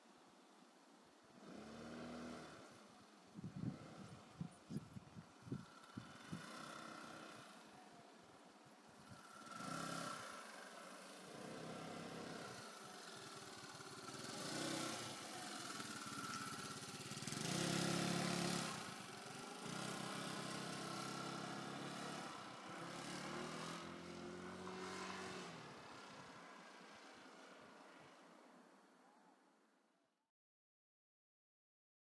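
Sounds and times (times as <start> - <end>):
scooter engine running: 1.4 - 8.1, 8.8 - 27.5.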